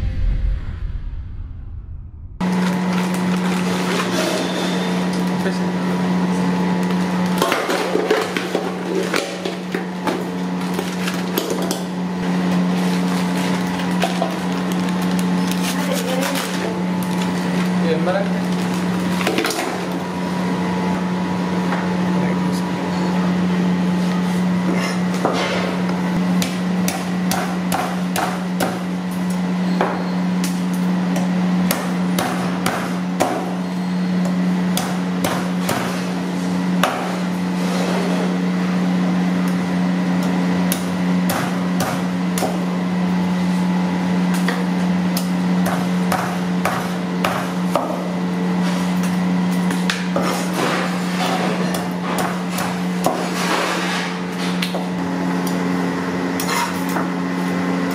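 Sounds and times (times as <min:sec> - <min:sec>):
steady low hum: 0:00.0 - 0:03.9
cleaver chopping on wooden board: 0:26.4 - 0:28.8, 0:31.2 - 0:33.6, 0:34.7 - 0:36.0, 0:36.8 - 0:37.2, 0:40.7 - 0:42.6, 0:45.6 - 0:48.1, 0:51.6 - 0:53.3.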